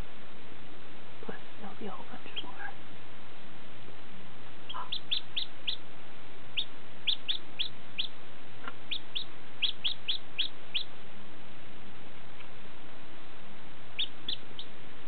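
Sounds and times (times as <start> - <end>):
chick peeping: 2.2 - 2.7, 4.7 - 5.9, 6.5 - 11.0, 13.9 - 14.8.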